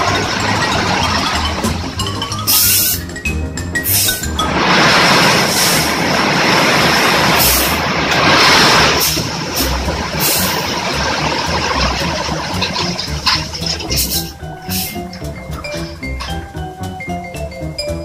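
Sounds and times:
truck engine running: 0.0 - 18.0
salt rushing with loud hiss: 3.9 - 10.8, 14.0 - 15.1.

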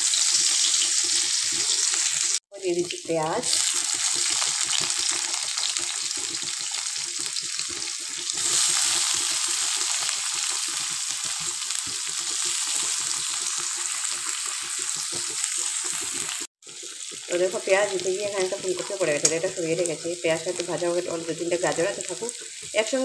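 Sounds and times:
onions sizzling in oil: 0.0 - 23.0.

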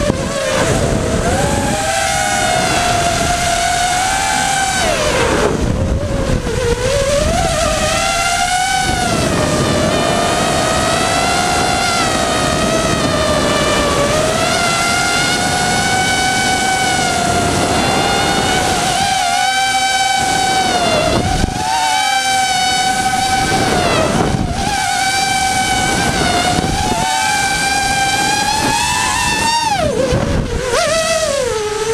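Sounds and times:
drone motors whining: 0.0 - 31.9.

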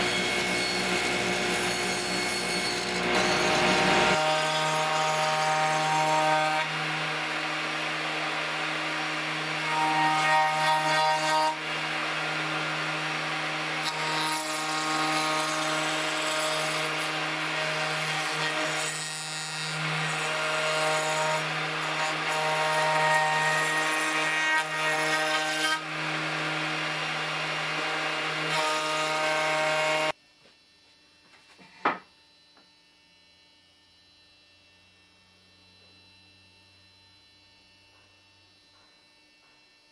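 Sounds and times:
router cutting wood: 0.0 - 30.2
router whining: 0.0 - 30.8.

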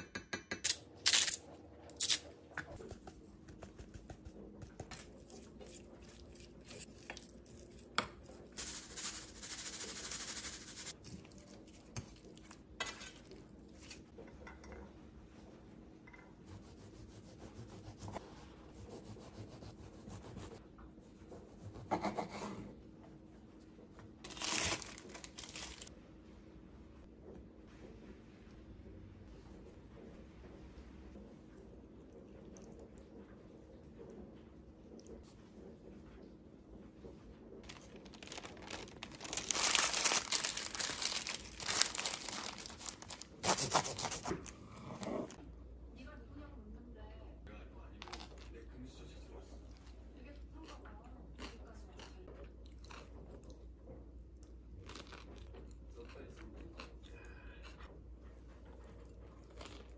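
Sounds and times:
paper crinkling: 24.2 - 25.9, 37.6 - 44.5
knife sawing through bread: 43.4 - 44.4.

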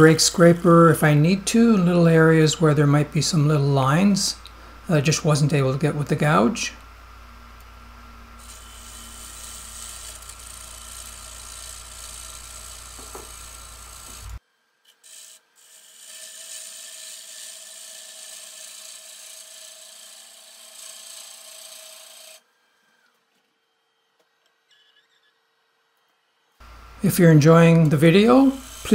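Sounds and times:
faint steady lathe tone: 6.4 - 28.9
gouge shearing wood on lathe: 8.4 - 14.4, 15.0 - 22.4, 27.2 - 28.9.

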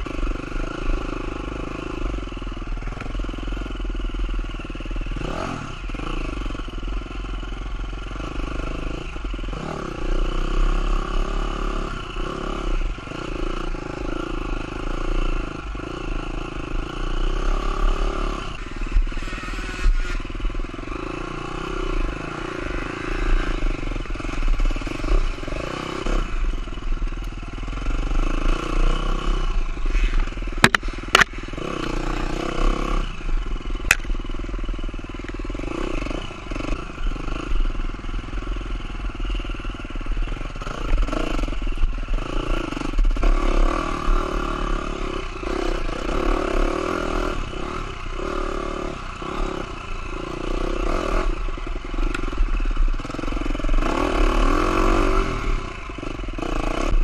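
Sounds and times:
dirt bike engine revving: 0.0 - 57.0
sharp knocks: 30.6 - 31.3.

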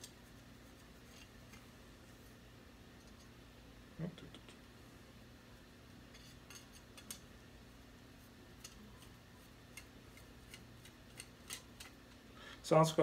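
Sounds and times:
metal threads clicking: 9.7 - 12.0.

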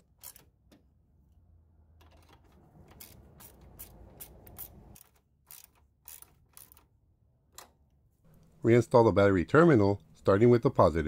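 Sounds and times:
socket ratchet clicking: 2.9 - 6.9.

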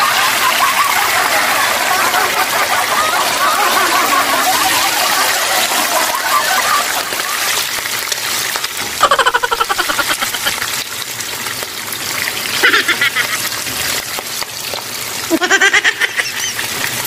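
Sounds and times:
fish sizzling in a frying pan: 6.6 - 15.3, 16.2 - 17.0.

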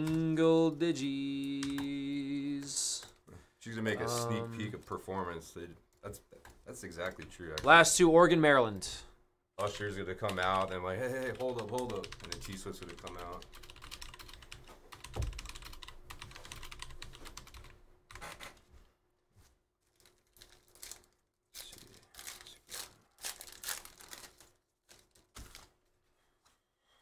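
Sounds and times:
card wrapper tearing and crinkling: 20.0 - 25.7.

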